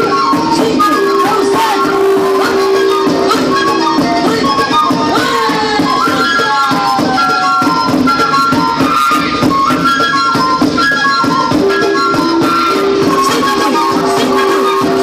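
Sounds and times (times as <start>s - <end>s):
folk music melody: 0.0s - 15.0s.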